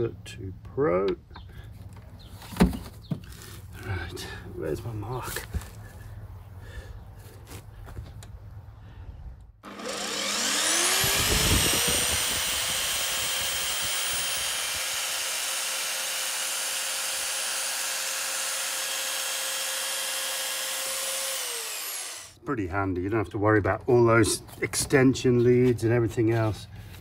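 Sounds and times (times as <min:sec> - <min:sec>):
electric saw cutting plastic pipe: 0:09.6 - 0:22.4.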